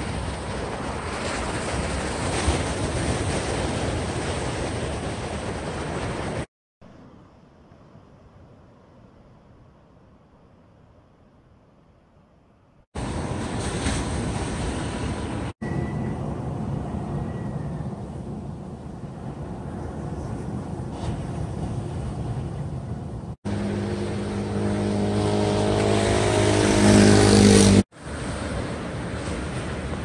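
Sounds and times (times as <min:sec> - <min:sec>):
wind: 0:00.0 - 0:30.0
surf: 0:13.0 - 0:16.1, 0:18.8 - 0:30.0
vehicle engine hum: 0:23.0 - 0:27.8.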